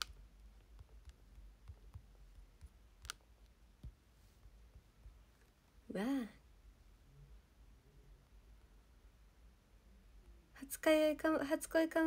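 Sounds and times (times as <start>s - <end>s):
finger tapping smartphone: 0.0s - 5.2s.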